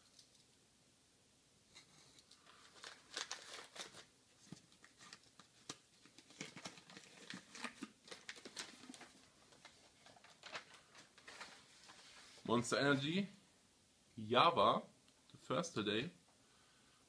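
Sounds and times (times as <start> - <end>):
packing material rustling: 1.8 - 12.5.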